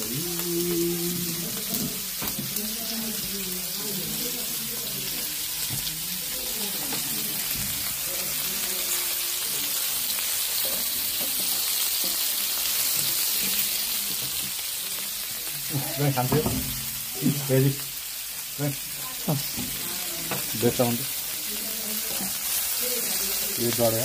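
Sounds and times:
meat sizzling on griddle: 0:00.0 - 0:24.0.

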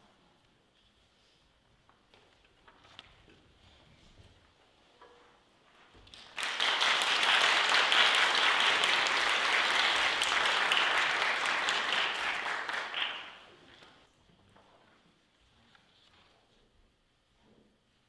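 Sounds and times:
audience applauding: 0:06.1 - 0:13.5.

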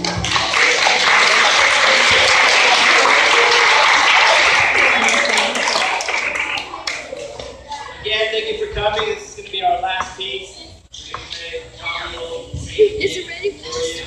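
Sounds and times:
children clapping: 0:00.0 - 0:07.8
children's voices: 0:00.0 - 0:09.0, 0:12.0 - 0:14.0.

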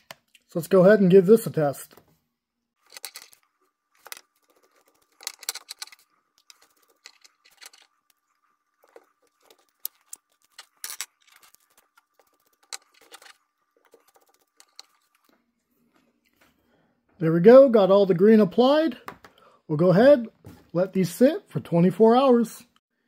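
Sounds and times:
metallic clicks and scrapes of nuts: 0:02.8 - 0:15.3.

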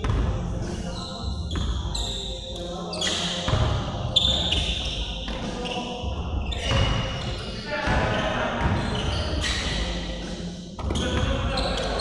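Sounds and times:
basketball bouncing on gym floor: 0:00.0 - 0:00.3, 0:03.5 - 0:03.8
sneakers squeaking: 0:00.0 - 0:12.0.

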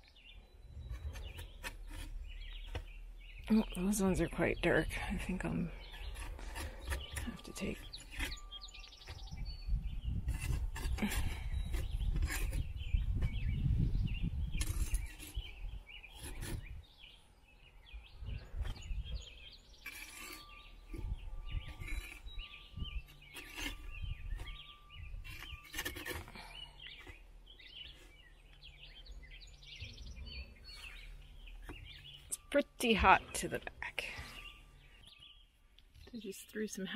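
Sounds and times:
birds chirping faintly: 0:00.0 - 0:36.9
metal spatula scraping oven floor: 0:19.8 - 0:26.3.

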